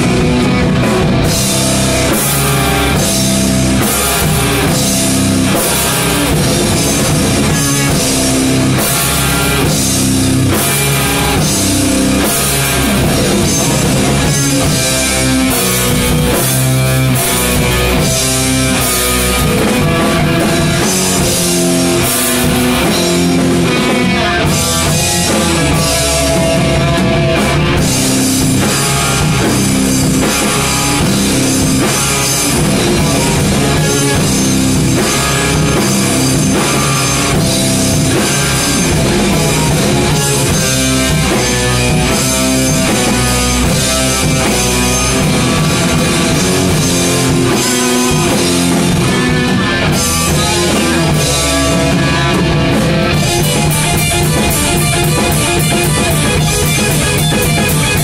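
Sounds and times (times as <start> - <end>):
bass guitar: 0.0 - 58.0
distorted electric guitars: 0.0 - 58.0
drum kit: 0.0 - 58.0.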